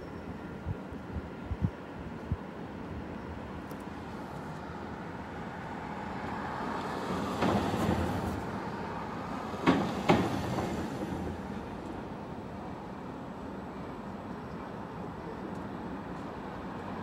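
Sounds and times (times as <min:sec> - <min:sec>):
city street traffic: 0:00.0 - 0:17.0
sharp knocks: 0:09.6 - 0:10.8.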